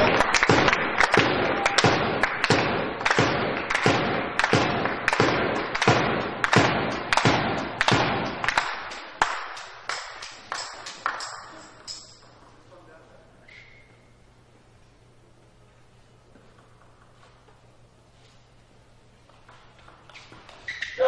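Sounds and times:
spectators beating rhythm in unison: 0:00.0 - 0:12.1.

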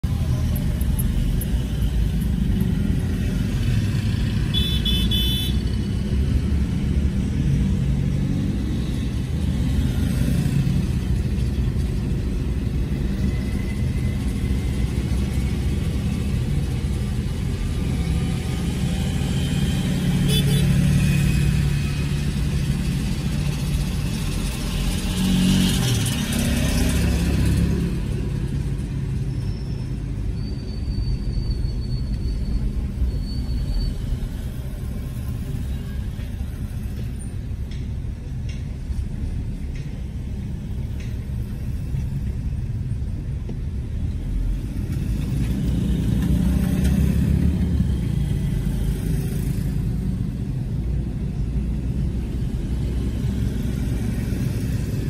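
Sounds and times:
traffic rumble: 0:00.0 - 0:55.0
engine passing by: 0:44.3 - 0:55.0.

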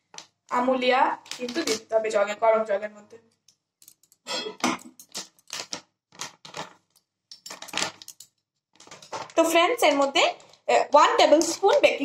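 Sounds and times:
packet rustling: 0:05.1 - 0:06.9.

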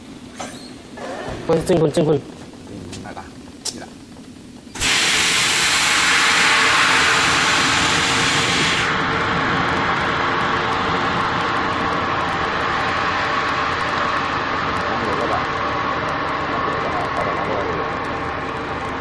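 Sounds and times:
machine hum: 0:00.0 - 0:19.0
rush of air: 0:04.8 - 0:16.6.

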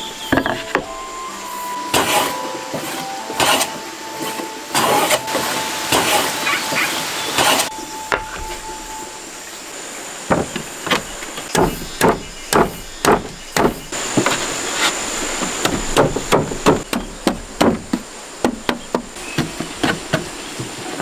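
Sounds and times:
wooden boards clattering on a stack: 0:00.3 - 0:00.9, 0:10.3 - 0:21.0.

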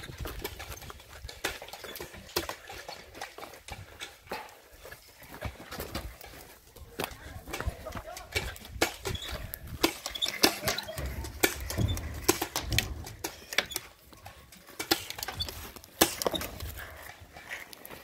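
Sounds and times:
sharp clicks and pops: 0:07.0 - 0:17.0.

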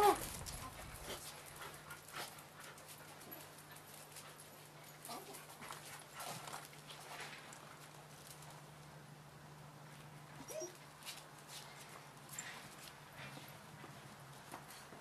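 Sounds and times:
dog whimpering: 0:00.0 - 0:00.2, 0:10.4 - 0:10.8.

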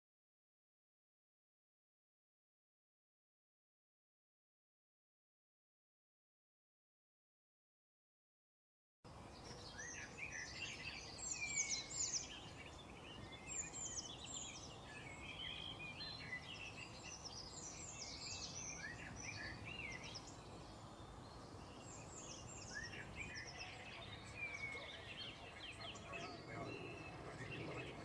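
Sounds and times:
low background noise: 0:09.1 - 0:28.0
small birds chirping: 0:09.1 - 0:28.0.

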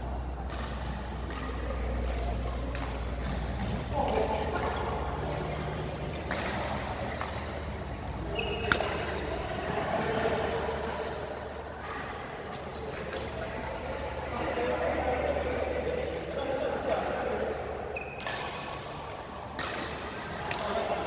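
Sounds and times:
rackets striking shuttlecock: 0:00.4 - 0:05.2, 0:06.0 - 0:14.8, 0:16.8 - 0:21.0
shoes squeaking on floor: 0:08.3 - 0:08.8, 0:12.6 - 0:13.6, 0:18.0 - 0:18.6.

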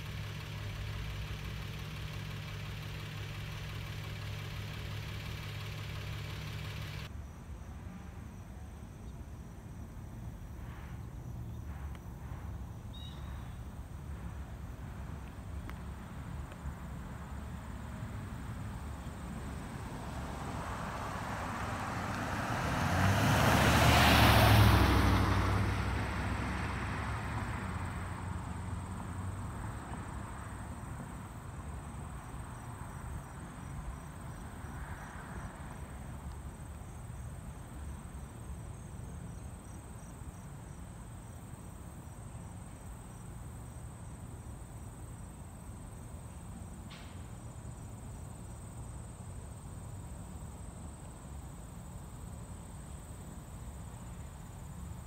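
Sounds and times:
pickup truck driving past: 0:00.0 - 0:07.1, 0:19.9 - 0:30.8
insects chirping: 0:00.0 - 0:14.6, 0:15.6 - 0:55.0.

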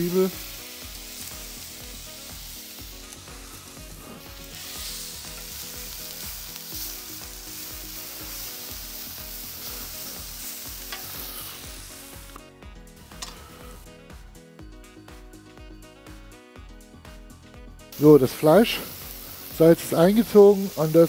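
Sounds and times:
onions and mushrooms sizzling: 0:00.0 - 0:16.2, 0:17.9 - 0:21.0
quiet background music: 0:00.0 - 0:21.0
spatula stirring on griddle: 0:00.5 - 0:12.2.

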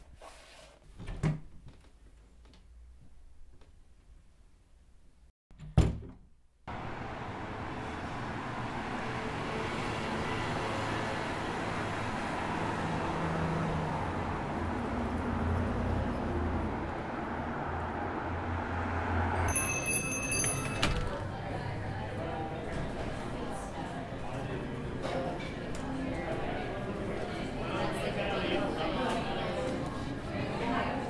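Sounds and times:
door shutting: 0:05.5 - 0:06.3
low traffic rumble: 0:06.7 - 0:31.0.

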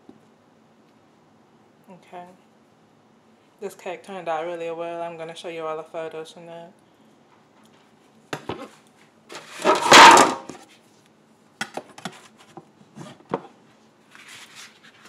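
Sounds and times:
loud rustling scrape: 0:09.3 - 0:10.8, 0:14.1 - 0:15.0
kitchen items knocking on countertop: 0:09.6 - 0:10.6.

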